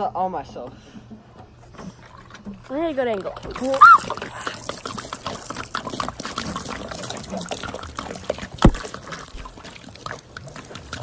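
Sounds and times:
water pouring and trickling: 1.8 - 11.0.

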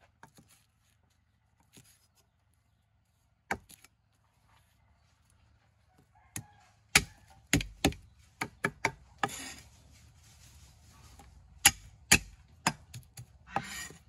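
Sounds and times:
cleaver chopping on wooden block: 6.9 - 9.4, 11.6 - 13.9
blade scraping wooden block: 9.2 - 9.7, 13.5 - 14.0.

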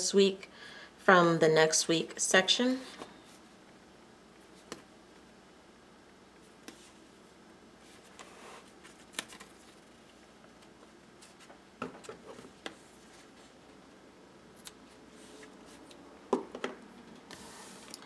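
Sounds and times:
tape clicks and paper rustles: 8.8 - 9.9.

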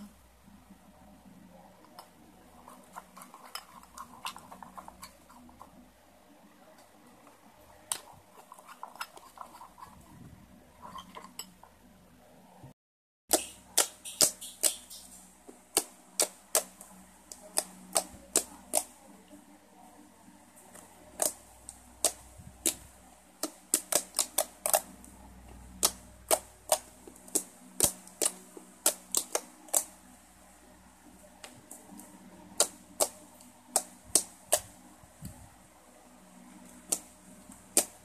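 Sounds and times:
slime clicking and popping: 13.3 - 15.1, 23.4 - 24.9, 25.7 - 29.9.

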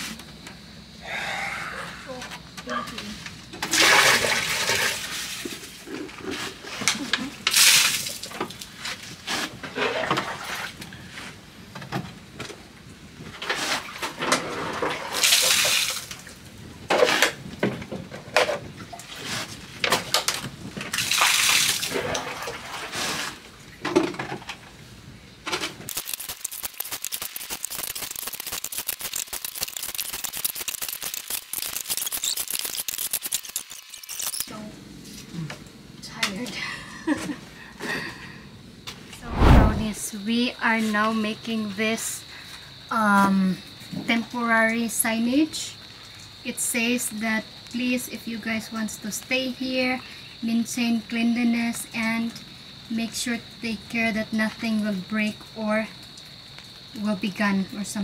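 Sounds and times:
water pouring and splashing: 3.6 - 5.8, 7.5 - 8.6, 15.0 - 16.4, 20.9 - 23.5, 25.9 - 34.5.

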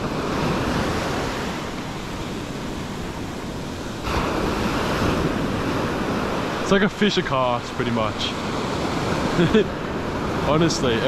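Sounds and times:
wind buffeting microphone: 0.0 - 7.2
surf breaking on sand: 0.0 - 11.0.

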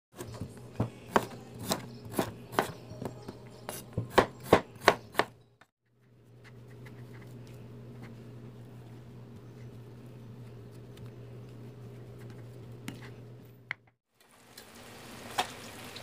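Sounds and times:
knife chopping on wooden board: 0.2 - 5.3
low steady hum: 6.0 - 13.9.

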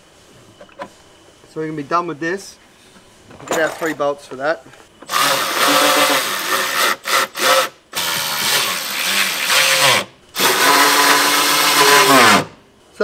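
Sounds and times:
cordless ratchet motor whining: 5.0 - 12.5.

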